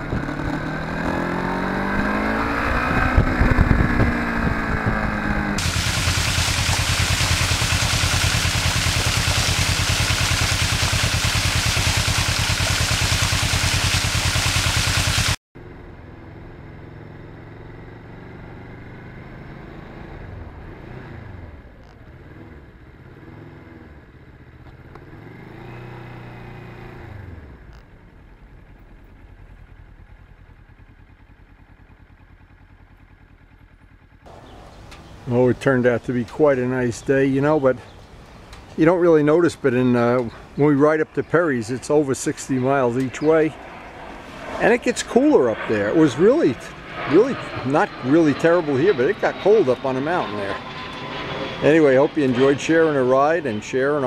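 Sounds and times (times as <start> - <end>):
motorcycle engine running: 0.0 - 35.7
wind on microphone: 1.9 - 6.0.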